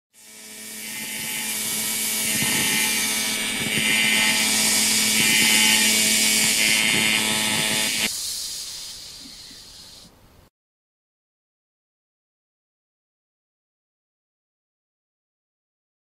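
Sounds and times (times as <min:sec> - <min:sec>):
steady buzzing hum: 0:00.2 - 0:08.6
welding arc crackling hiss: 0:00.2 - 0:09.2.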